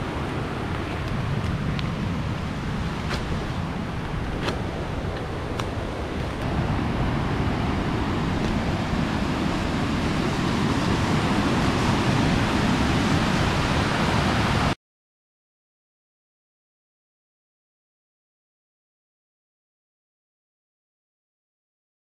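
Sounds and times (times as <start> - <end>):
rushing water from a waterfall: 0.0 - 14.8.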